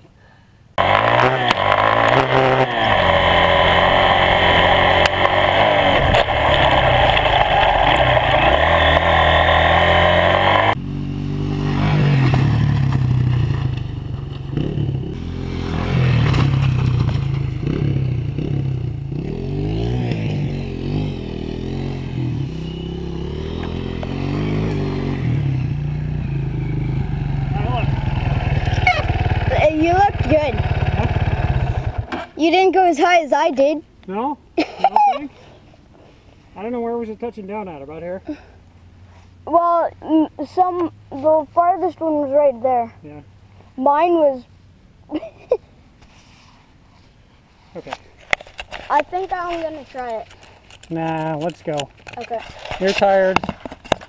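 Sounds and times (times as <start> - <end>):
dirt bike engine revving: 0.8 - 32.4.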